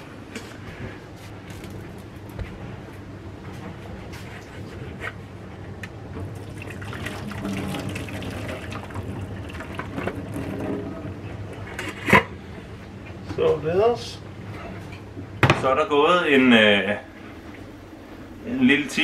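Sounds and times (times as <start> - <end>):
hot water pouring into a steel sink: 6.4 - 11.1.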